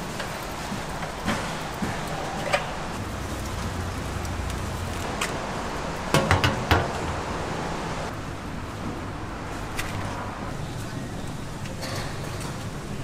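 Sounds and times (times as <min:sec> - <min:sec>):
steady hiss: 0:00.0 - 0:08.1.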